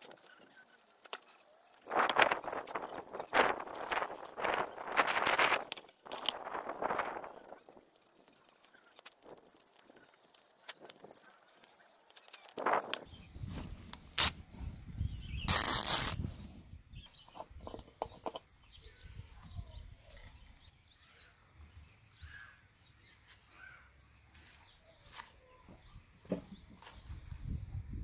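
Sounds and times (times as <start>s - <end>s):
faint bird chirps: 18.5s - 28.0s.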